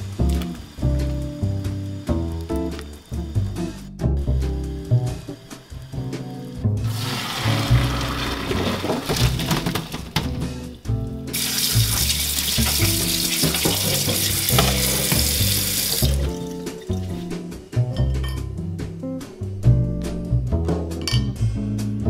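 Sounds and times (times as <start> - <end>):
running tap pouring water: 6.8 - 10.6, 11.3 - 17.2
hot water splashing through colander: 6.8 - 17.3.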